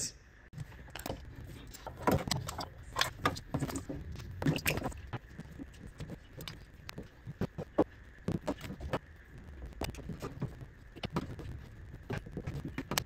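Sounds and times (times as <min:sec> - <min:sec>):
clicks and rattles of plastic parts: 0:00.6 - 0:09.0.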